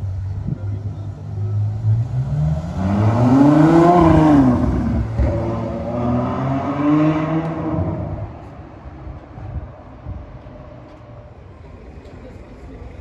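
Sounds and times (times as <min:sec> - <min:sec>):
sports car accelerating past: 0:01.3 - 0:08.4.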